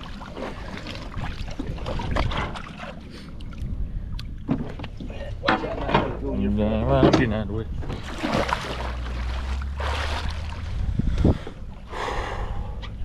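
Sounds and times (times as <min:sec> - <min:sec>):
water splashing: 0:00.0 - 0:03.7, 0:07.8 - 0:11.4
wind rumbling on microphone: 0:00.0 - 0:06.3, 0:07.1 - 0:13.0.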